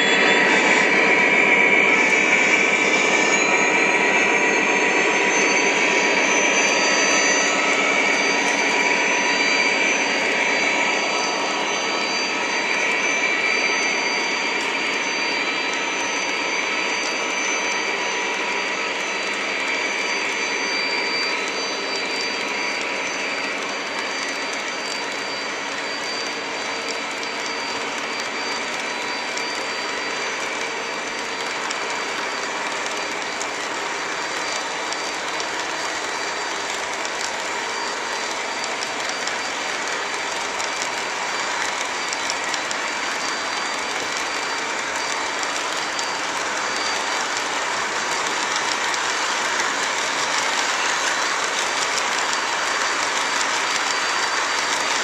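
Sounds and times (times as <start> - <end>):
model train cars rolling: 19.8 - 55.0.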